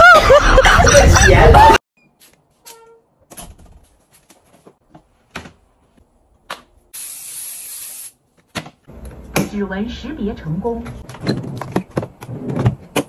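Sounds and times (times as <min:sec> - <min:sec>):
steady hiss: 0:07.0 - 0:08.2.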